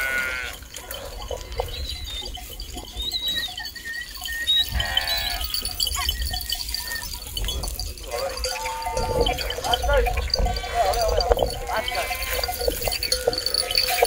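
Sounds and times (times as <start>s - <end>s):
sheep bleating: 0.0s - 1.7s, 4.6s - 6.1s, 8.1s - 14.0s.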